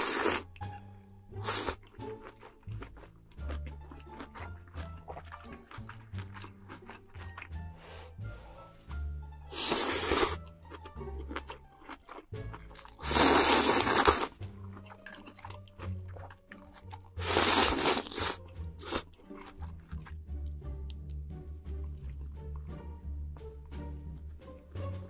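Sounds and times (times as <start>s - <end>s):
slurping noodles: 0.0s - 0.6s, 1.4s - 8.8s, 9.5s - 20.2s
background music: 0.0s - 25.0s
chewing clicks: 1.8s - 7.5s, 10.3s - 20.6s.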